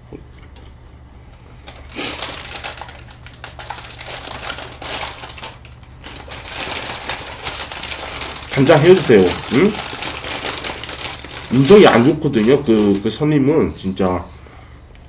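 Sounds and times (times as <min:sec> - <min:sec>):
crunching and chewing waffle: 0:01.6 - 0:13.0.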